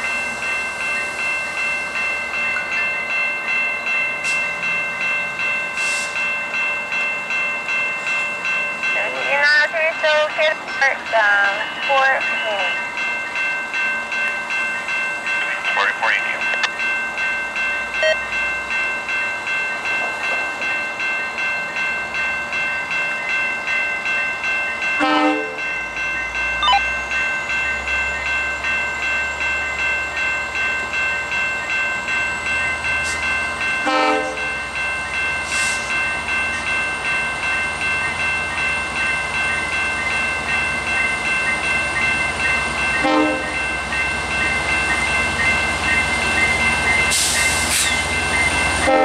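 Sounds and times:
diesel locomotive rumble: 0.0s - 23.0s, 23.6s - 49.0s
level-crossing bell ringing: 0.0s - 49.0s
train horn blasts: 25.0s - 25.6s, 33.9s - 34.4s, 43.0s - 43.5s.

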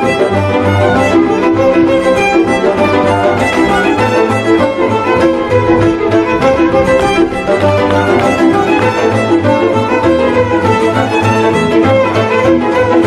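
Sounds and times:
accompaniment chords: 0.0s - 12.4s
fiddle playing a tune: 0.0s - 13.0s
pulsing low bass: 1.2s - 10.4s.

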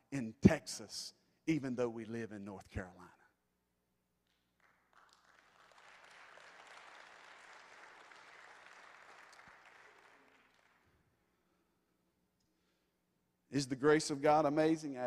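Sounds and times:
congregation applauding: 4.5s - 11.2s.

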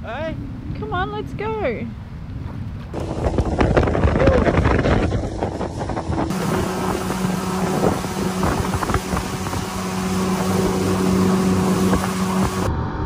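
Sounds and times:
outboard motor running: 3.0s - 12.7s.

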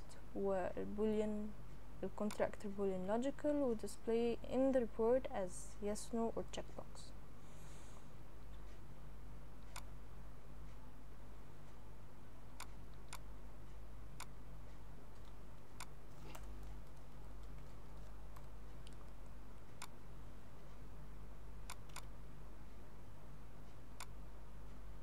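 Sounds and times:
low electrical hum: 0.0s - 25.0s
computer mouse clicking: 12.6s - 13.2s, 21.7s - 22.1s.

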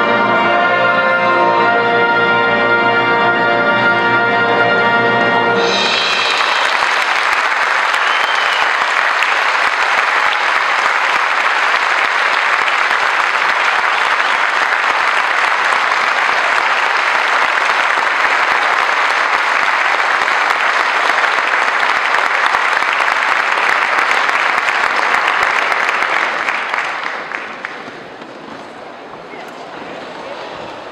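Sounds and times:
audience applauding: 5.7s - 28.8s.

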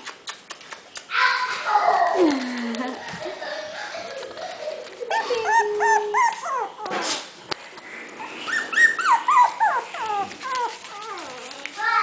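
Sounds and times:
puppies yipping and whimpering: 5.0s - 12.0s.

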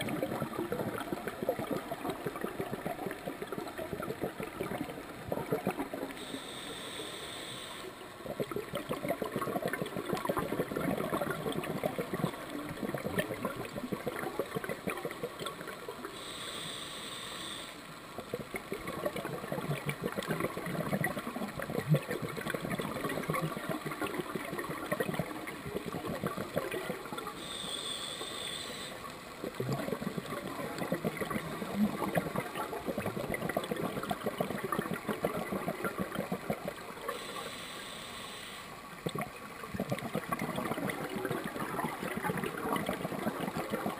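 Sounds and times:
exhaust bubbles bubbling: 0.0s - 6.2s, 8.2s - 16.1s, 18.2s - 27.4s, 29.4s - 37.2s, 39.0s - 43.9s
hissing regulator inhale: 6.2s - 8.0s, 16.1s - 17.8s, 27.4s - 29.0s, 37.1s - 38.8s.

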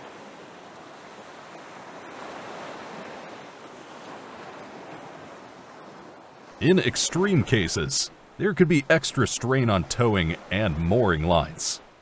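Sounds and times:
water jets spraying: 6.6s - 11.8s.

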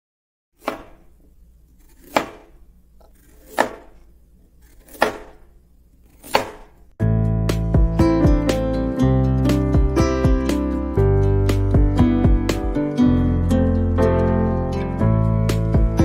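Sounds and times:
guitar music: 7.0s - 16.0s.

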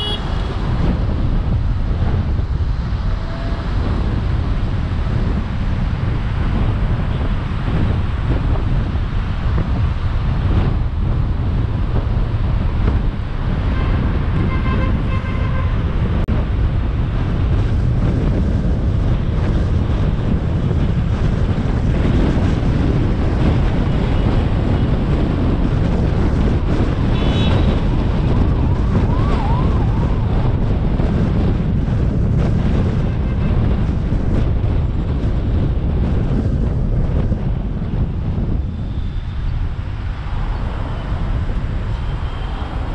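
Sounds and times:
car horns honking: 0.0s - 0.6s, 13.7s - 15.8s
car road noise: 0.0s - 42.9s.

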